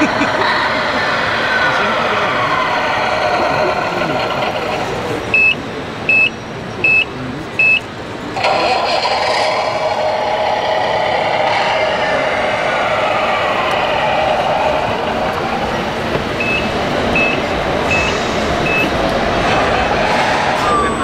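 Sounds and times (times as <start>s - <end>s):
machine mechanical noise: 0.0s - 21.0s
high reversing beeps: 5.3s - 7.9s, 16.3s - 19.0s.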